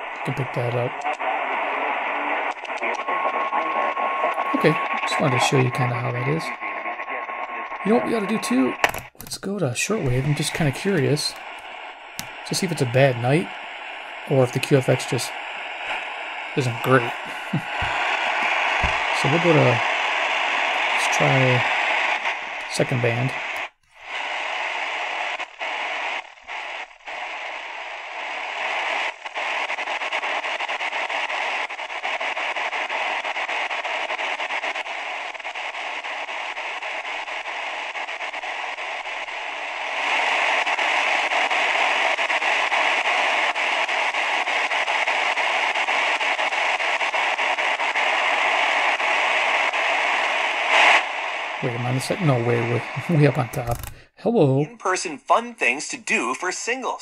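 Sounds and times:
shortwave radio static hiss: 0.0s - 57.0s.

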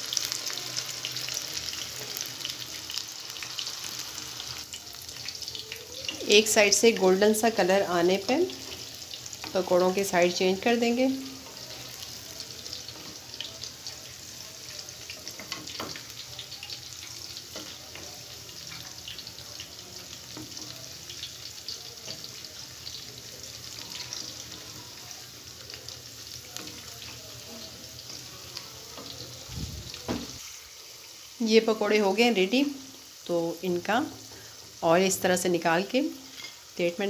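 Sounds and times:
fritters sizzling in oil: 0.0s - 37.0s.

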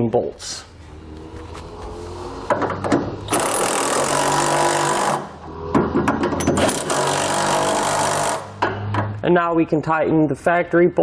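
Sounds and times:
electric ratchet spinning bolts: 3.2s - 5.3s, 6.5s - 8.6s.

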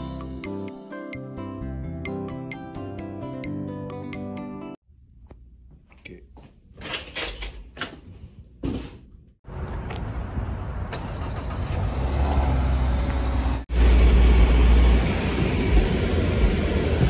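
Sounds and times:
car rumble with hiss: 11.2s - 17.0s.

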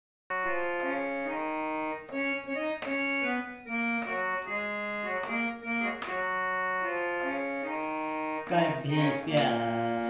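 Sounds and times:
electronic keyboard melody: 0.3s - 10.0s.

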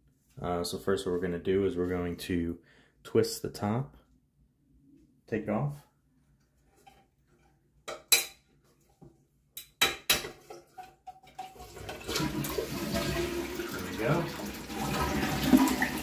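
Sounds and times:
water rushing: 11.7s - 16.0s.

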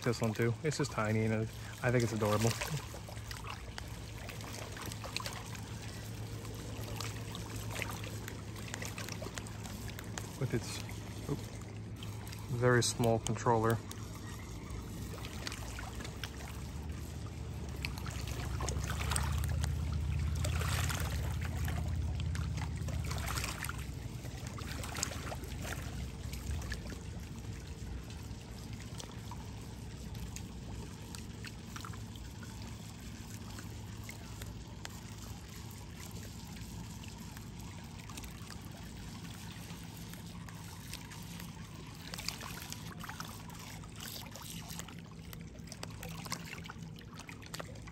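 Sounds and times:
small waves lapping on rocks: 0.0s - 47.9s
low rumble: 13.9s - 28.2s.

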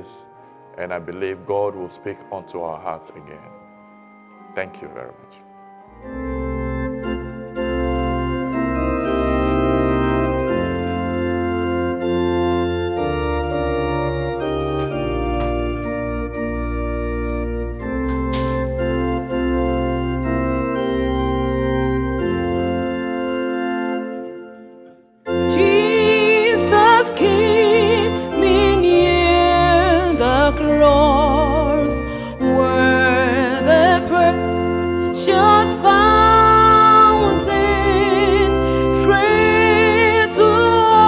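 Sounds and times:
keyboard bass line: 0.0s - 41.0s
keyboard organ chords: 0.0s - 41.0s
woman singing with vibrato: 25.4s - 34.4s, 35.1s - 41.0s.

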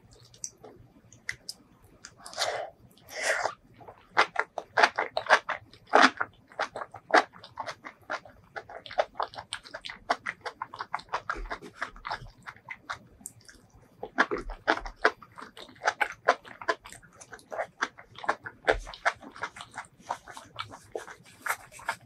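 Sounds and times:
wet chewing and mouth smacks: 0.0s - 22.0s.

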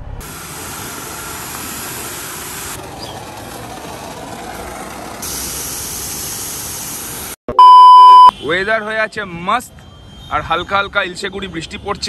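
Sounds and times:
low engine rumble: 0.0s - 7.3s
outdoor hiss: 0.2s - 7.4s.

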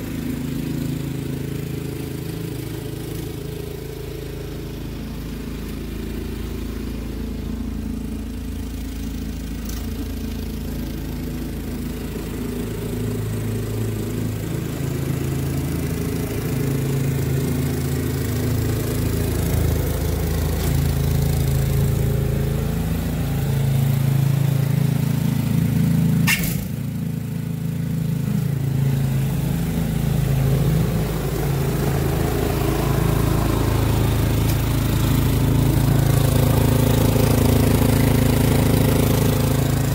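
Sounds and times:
snowblower engine running: 0.0s - 39.9s
sharp click: 26.2s - 26.7s.

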